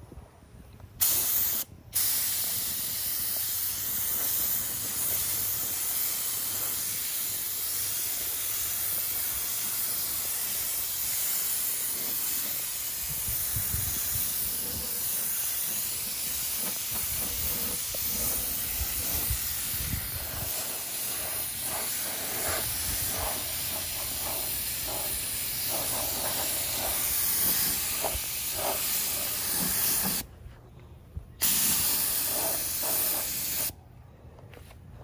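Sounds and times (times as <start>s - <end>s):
spray gun hissing: 1.0s - 30.2s, 31.4s - 33.7s.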